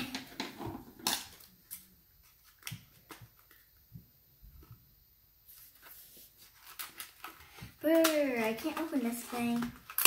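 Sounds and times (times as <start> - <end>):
plastic package clicks and taps: 7.8 - 8.9.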